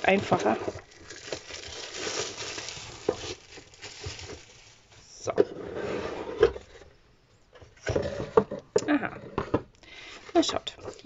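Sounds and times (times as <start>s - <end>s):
plastic shrink-wrap crinkling: 0.0s - 5.3s
cardboard box rustling: 0.1s - 4.8s.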